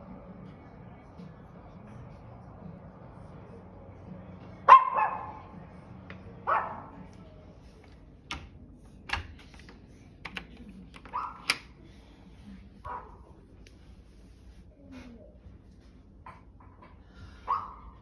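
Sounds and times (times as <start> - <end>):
dog barking: 4.7 - 5.5, 6.4 - 7.0, 11.1 - 11.5, 12.9 - 13.3, 17.4 - 18.0.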